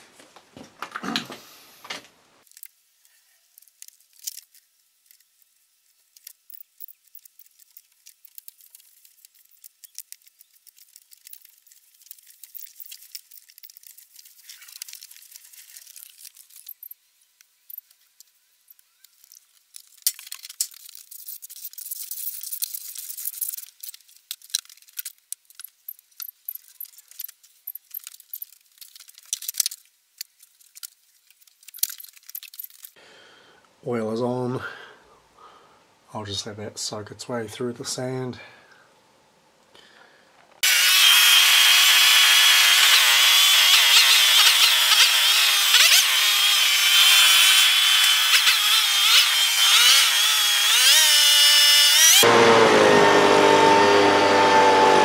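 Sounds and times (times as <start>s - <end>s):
sand and oil clicking and hissing: 2.4s - 33.0s.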